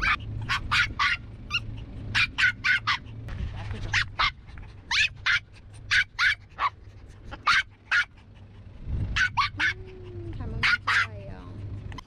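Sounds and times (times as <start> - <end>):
dog barking in high yaps: 0.0 - 3.0, 3.9 - 6.8, 7.4 - 8.1, 9.2 - 9.8, 10.6 - 11.1.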